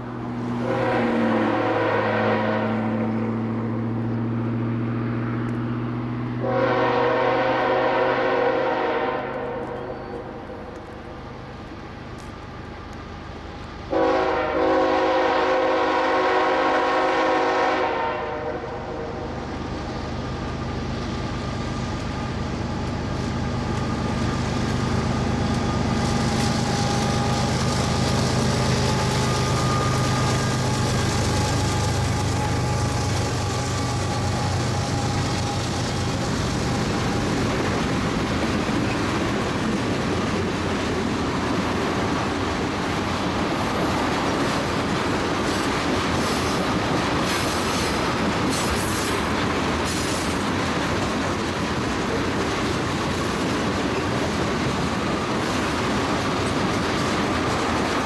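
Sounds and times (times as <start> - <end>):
diesel locomotive engines droning: 0.0 - 58.0
train wheels on rails: 0.0 - 58.0
locomotive air horn chord: 0.6 - 3.1, 6.4 - 10.7, 13.9 - 19.3.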